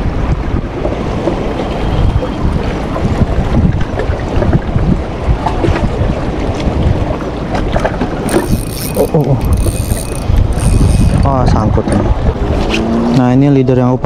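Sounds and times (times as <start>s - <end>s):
wind buffeting microphone: 0.0s - 14.0s
fishing reel whirring: 1.6s - 2.5s, 8.3s - 11.4s.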